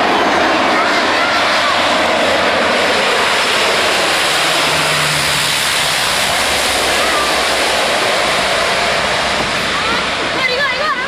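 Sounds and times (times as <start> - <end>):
dense rushing noise: 0.0 - 11.0
propeller engines running loud: 0.0 - 11.0.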